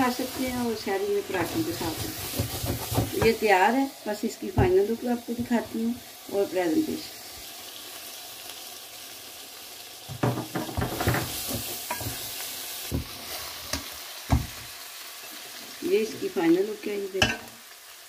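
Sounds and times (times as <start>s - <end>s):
curry sizzling in a pot: 0.0s - 18.0s
spoons stirring and scraping: 1.3s - 3.4s.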